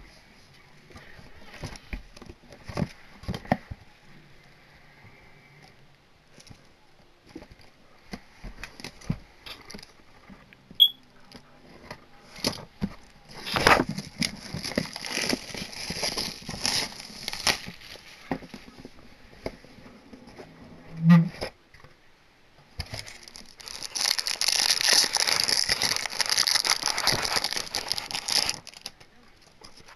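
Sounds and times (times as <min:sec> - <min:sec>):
plastic wrap crinkling and tearing: 0:12.3 - 0:18.3, 0:22.8 - 0:29.9.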